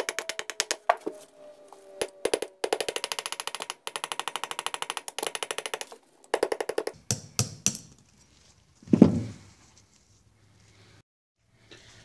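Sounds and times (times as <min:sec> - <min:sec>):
rapid metal clicks of hand tools: 0:00.0 - 0:00.9, 0:02.2 - 0:07.8.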